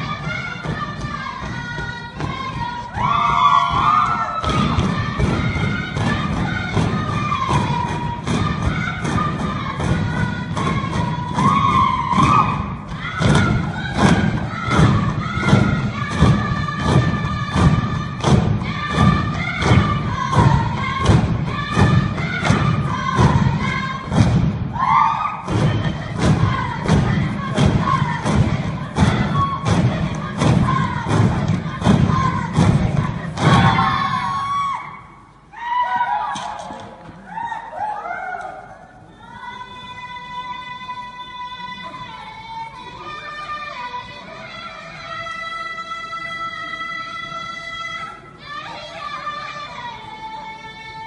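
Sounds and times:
voices singing: 0:00.0 - 0:51.0
wooden poles thudding on stage: 0:00.6 - 0:34.3.

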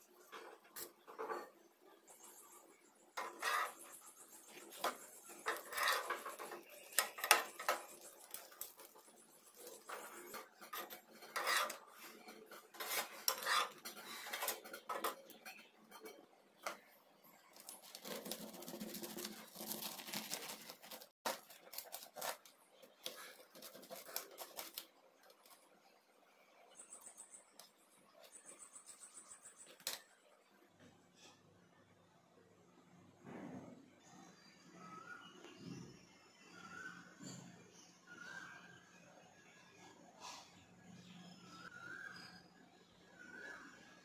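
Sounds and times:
utensils scraping a frying pan: 0:03.1 - 0:25.0
knife cutting toasted bread: 0:17.6 - 0:24.9.

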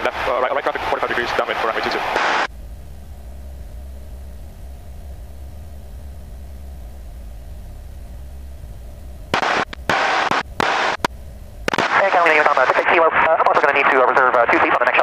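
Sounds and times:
bursts of radio noise: 0:00.0 - 0:02.5, 0:09.3 - 0:15.0
propeller plane engine drone: 0:00.0 - 0:15.0.

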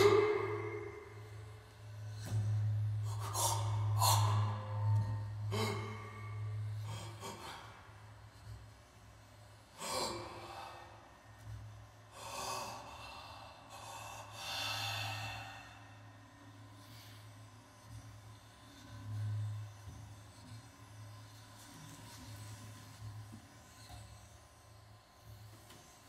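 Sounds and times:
noisy bow strokes: 0:00.0 - 0:07.0.

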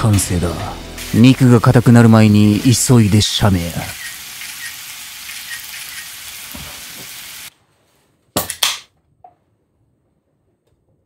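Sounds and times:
meat sizzling in a skillet: 0:00.8 - 0:01.7, 0:02.4 - 0:07.5.

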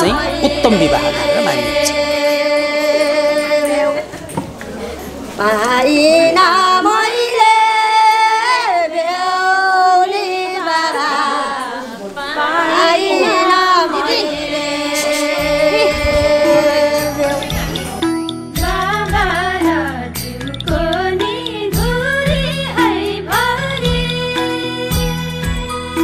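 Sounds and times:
low pulsing beat: 0:00.0 - 0:02.0, 0:15.4 - 0:18.0
woman singing slow song: 0:00.0 - 0:04.4, 0:05.4 - 0:17.9, 0:18.6 - 0:26.0.

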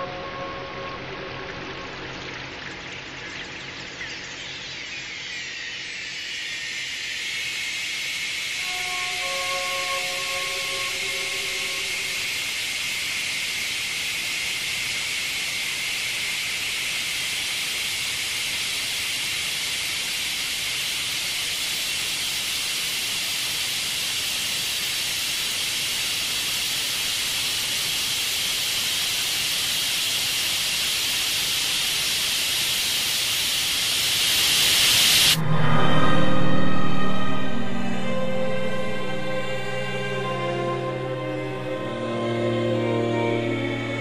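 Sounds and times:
low held drone: 0:00.0 - 0:02.3, 0:08.6 - 0:12.8, 0:35.2 - 0:44.0
high hiss of noise: 0:00.0 - 0:44.0.

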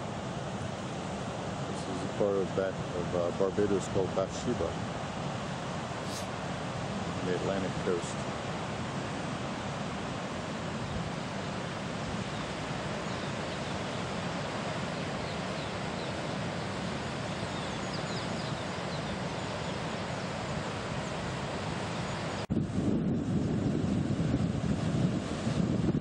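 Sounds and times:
wind buffeting microphone: 0:20.3 - 0:26.0.

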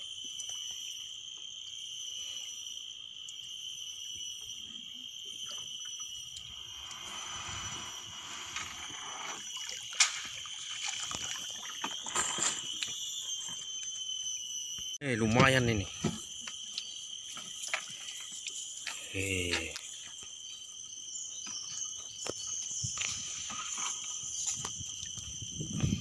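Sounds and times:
high insect buzz: 0:00.0 - 0:26.0
water splashing and dripping: 0:09.2 - 0:12.9.

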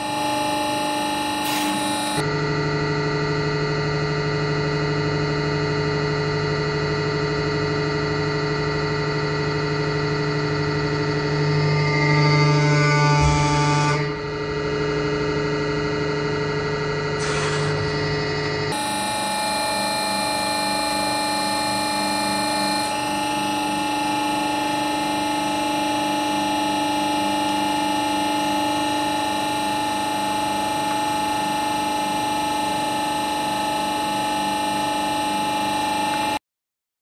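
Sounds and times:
hydraulic pump motor whining: 0:01.3 - 0:02.2, 0:17.2 - 0:23.5.

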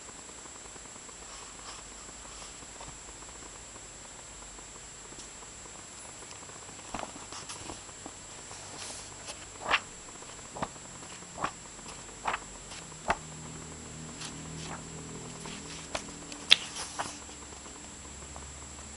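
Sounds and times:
book pages flicking: 0:06.7 - 0:13.3, 0:14.2 - 0:17.4.

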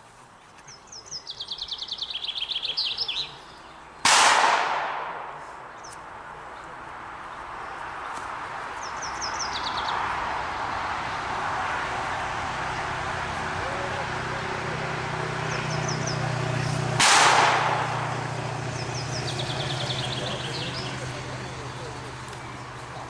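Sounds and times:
songbird chirping: 0:00.0 - 0:04.1, 0:05.4 - 0:16.9, 0:17.5 - 0:23.0
loud bang: 0:04.1 - 0:05.6, 0:17.0 - 0:18.3.

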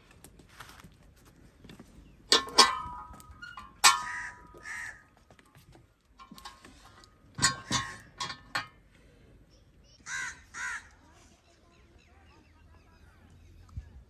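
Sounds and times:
iron griddle clanking: 0:02.3 - 0:04.6, 0:06.2 - 0:08.8
crow cawing: 0:04.1 - 0:05.1, 0:10.0 - 0:11.0.

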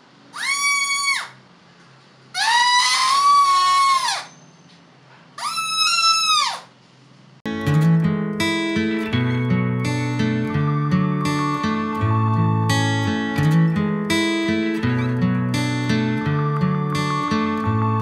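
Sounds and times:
buzzing reedy harmonica notes: 0:09.1 - 0:18.0.

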